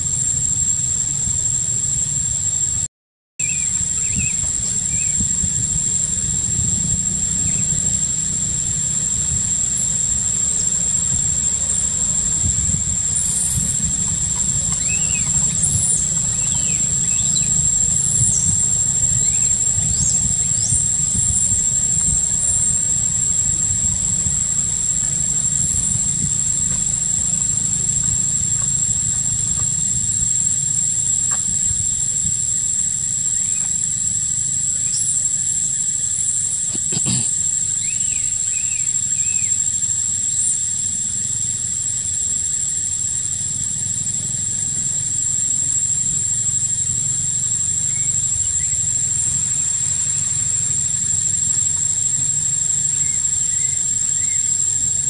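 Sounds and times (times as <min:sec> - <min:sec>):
insect drone: 0:00.0 - 0:55.0
bird chirps: 0:03.4 - 0:06.2, 0:13.1 - 0:22.8, 0:34.8 - 0:35.2, 0:36.5 - 0:39.6, 0:47.8 - 0:50.5.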